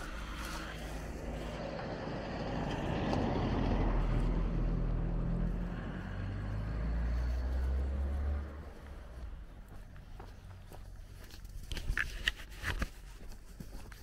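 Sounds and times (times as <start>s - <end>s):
car driving past: 0.0s - 10.6s
low engine rumble: 0.0s - 11.7s.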